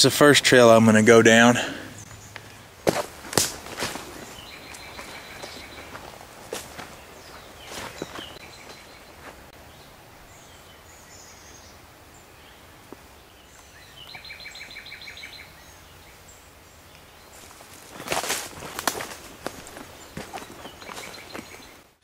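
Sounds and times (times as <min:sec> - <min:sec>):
footsteps crunching through brush: 0:02.1 - 0:09.6, 0:17.3 - 0:21.9.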